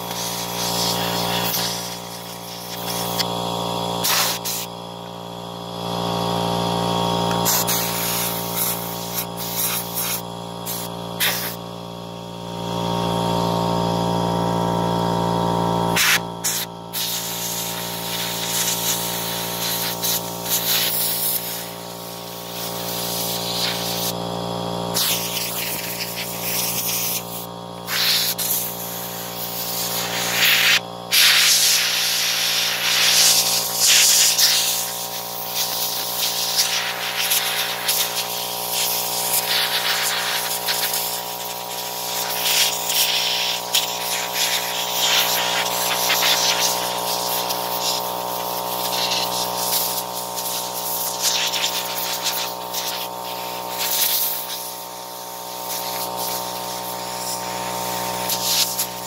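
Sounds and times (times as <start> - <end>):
air blow gun hissing: 0.0 - 59.0
steady machine hum: 0.0 - 59.0.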